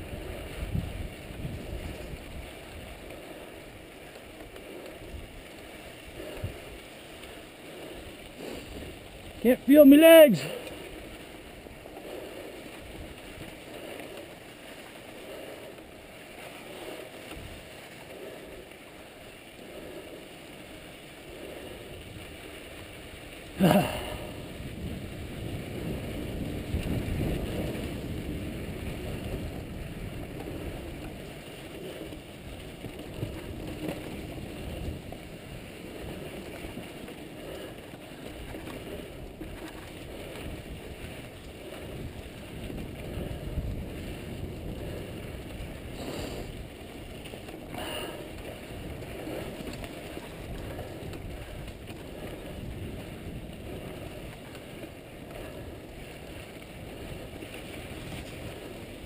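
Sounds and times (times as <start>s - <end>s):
wind on microphone: 0.0s - 3.8s, 23.6s - 59.0s
bike rattling over rough ground: 0.0s - 59.0s
tyres on loose dirt and gravel: 0.0s - 59.0s.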